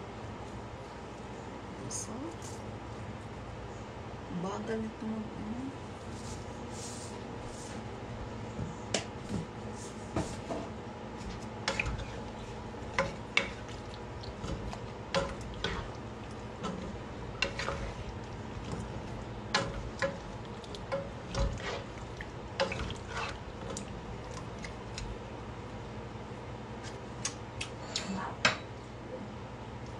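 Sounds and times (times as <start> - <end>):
wooden spatula stirring curry: 11.2 - 25.1
spatula knocking against pan: 14.5 - 15.8, 19.5 - 20.2.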